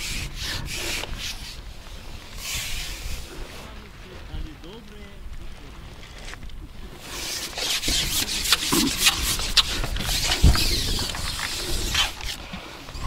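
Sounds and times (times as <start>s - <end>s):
handling rubbing and scraping: 0.0s - 13.0s.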